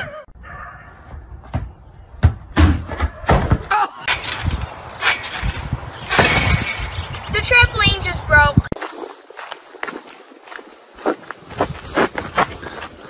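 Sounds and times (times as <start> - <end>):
sharp thumps and knocks: 1.5 - 7.9.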